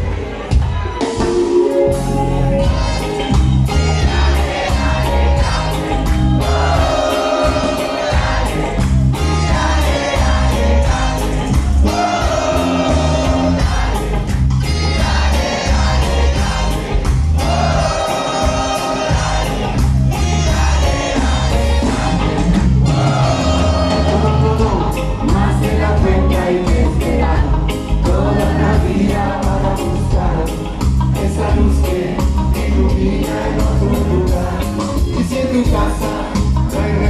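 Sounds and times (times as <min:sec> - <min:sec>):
reggae band playing live: 0:00.0 - 0:37.0
pulsing bass line: 0:01.3 - 0:37.0.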